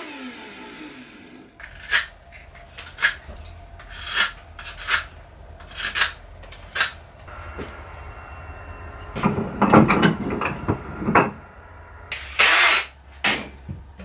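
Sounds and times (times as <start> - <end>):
saw blade winding down: 0.0 - 2.1, 11.6 - 12.9
hand file rasping: 3.8 - 6.9.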